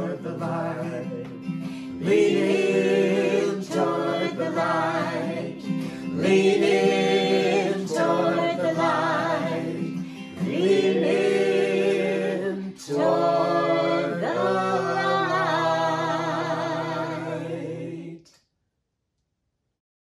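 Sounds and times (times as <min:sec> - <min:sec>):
acoustic guitar: 0:00.0 - 0:18.1
people singing a hymn in harmony: 0:00.0 - 0:18.3.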